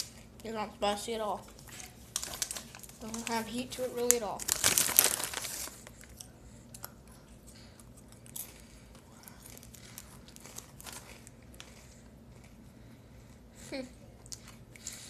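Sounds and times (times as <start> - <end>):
plastic snack bag crinkling: 1.4 - 6.2, 8.1 - 12.0
crackers being chewed: 4.0 - 13.6, 14.2 - 15.0.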